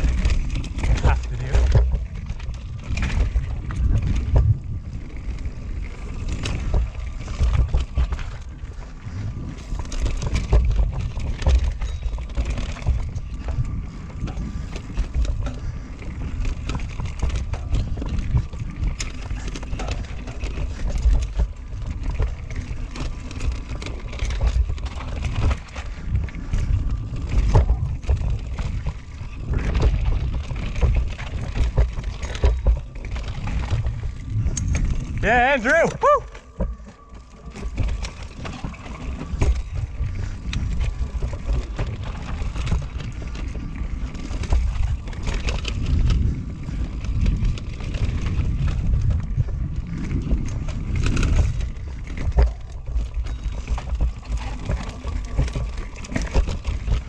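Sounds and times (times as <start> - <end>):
bike clicks knocks and rattles: 0.0 - 35.2, 36.0 - 57.0
bike tyres rumbling over dirt: 0.0 - 57.0
wind rumbling on microphone: 0.0 - 57.0.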